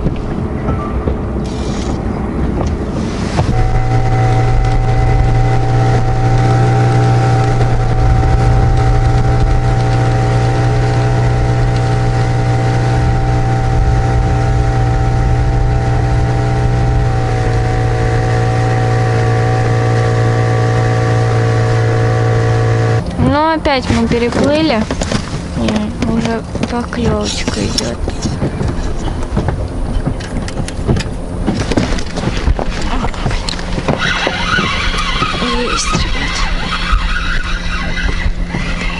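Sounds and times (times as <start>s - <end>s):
water rushing past hull: 0.0s - 27.4s
outboard motor running: 0.0s - 38.9s.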